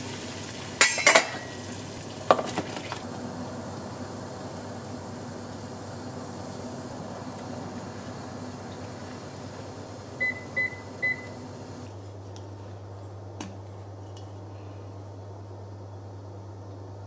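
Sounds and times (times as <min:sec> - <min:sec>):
steady low hum: 0:03.0 - 0:17.0
cooktop control panel beeps: 0:10.2 - 0:11.5.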